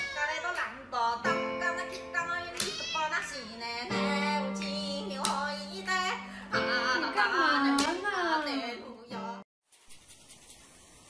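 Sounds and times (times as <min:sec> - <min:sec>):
pop song with high voice: 0:01.2 - 0:09.5.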